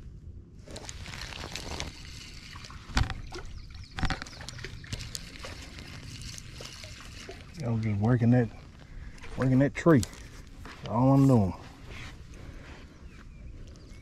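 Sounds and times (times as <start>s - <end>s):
fishing reel clicks and rustles: 0.7s - 11.5s.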